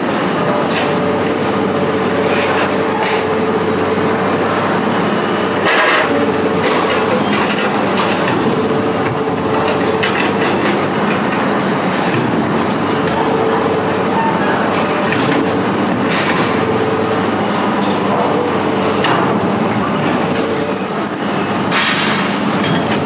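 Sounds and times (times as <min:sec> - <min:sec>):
heavy diesel machinery running: 0:00.0 - 0:23.0
scrap metal clanking and scraping: 0:05.6 - 0:08.5, 0:09.5 - 0:12.4.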